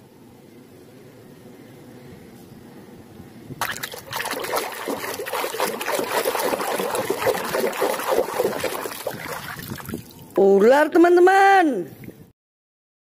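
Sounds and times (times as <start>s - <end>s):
water splashing in plastic tub: 3.6s - 10.3s.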